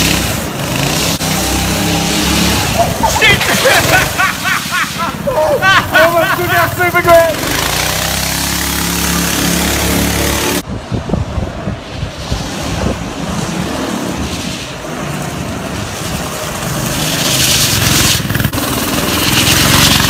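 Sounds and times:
small engine revving: 0:00.0 - 0:03.0, 0:06.4 - 0:10.6, 0:16.5 - 0:20.0.

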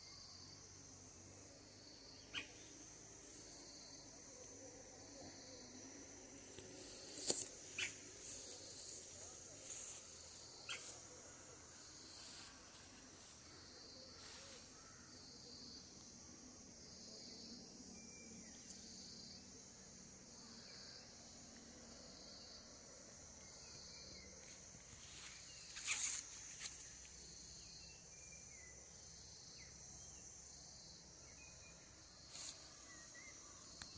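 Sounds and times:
insect chorus trilling: 0:00.0 - 0:33.9.

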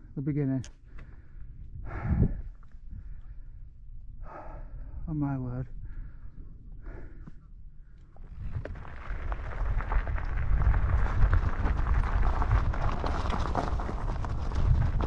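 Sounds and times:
low rumble: 0:01.6 - 0:15.0
bike tyres crunching on stones: 0:08.3 - 0:15.0.

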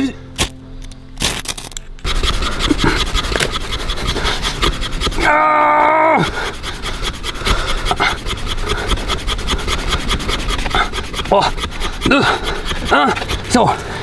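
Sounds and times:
rod rasping on wooden board: 0:02.0 - 0:14.0
person straining vocal note: 0:05.1 - 0:06.6.

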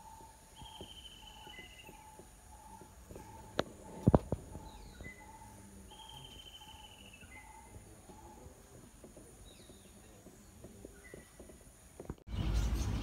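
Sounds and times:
faint birdsong: 0:00.0 - 0:13.0
sharp knocks: 0:08.0 - 0:12.3.

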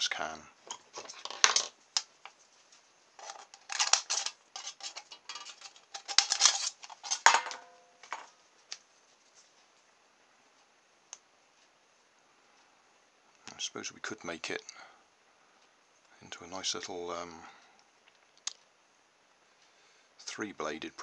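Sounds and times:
scissors cutting metal can: 0:03.2 - 0:07.2.

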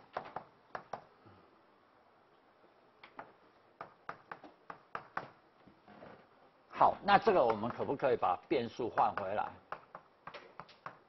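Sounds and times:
chalk tapping on blackboard: 0:03.2 - 0:05.4, 0:08.9 - 0:11.0.

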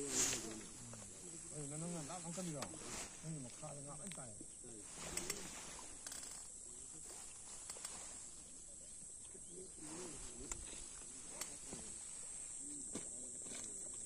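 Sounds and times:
faint distant voices: 0:00.0 - 0:14.0.

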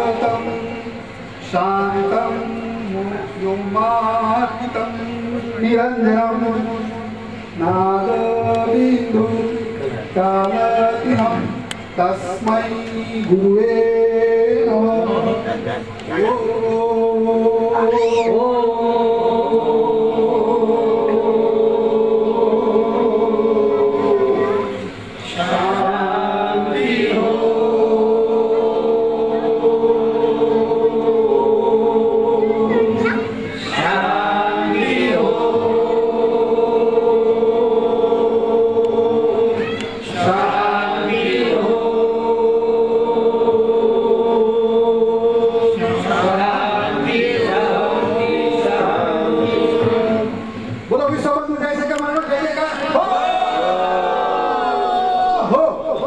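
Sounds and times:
group chanting on one pitch: 0:14.7 - 0:50.7, 0:52.2 - 0:56.0.

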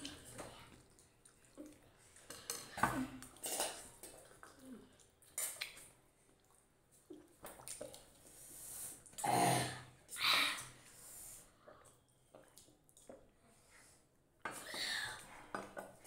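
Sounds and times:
slurping and chewing: 0:00.0 - 0:09.3.

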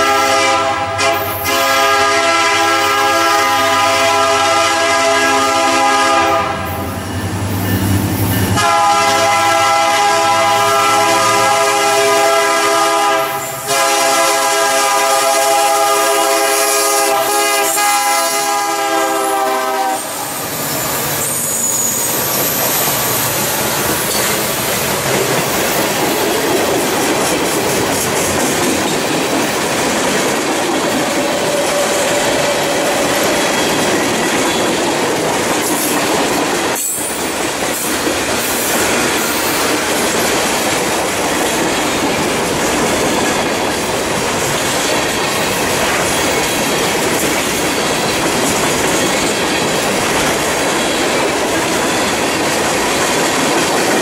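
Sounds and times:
locomotive air horn blasts: 0:00.0 - 0:06.8, 0:08.6 - 0:20.2
train wheels rolling on rail: 0:00.0 - 0:54.0.

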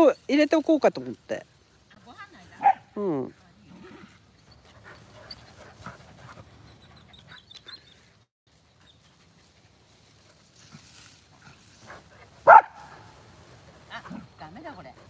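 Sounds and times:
dogs panting: 0:03.7 - 0:15.0
scuffling in grass: 0:08.0 - 0:15.0.

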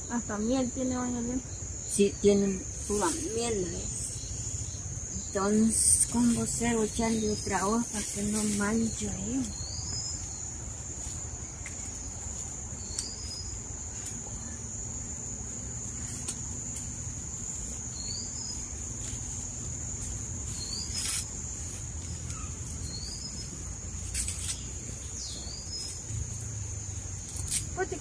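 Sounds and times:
insects droning: 0:00.0 - 0:28.0
bird chirping: 0:03.5 - 0:10.6, 0:20.5 - 0:27.9.

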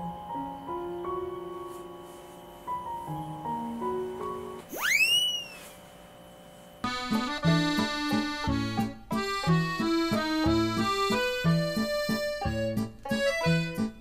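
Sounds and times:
upward-gliding whistle effect: 0:04.7 - 0:05.8
comical accordion music: 0:06.8 - 0:14.0.

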